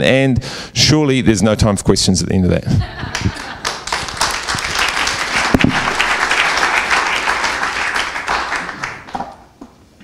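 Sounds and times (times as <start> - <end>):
audience applauding: 3.1 - 9.4.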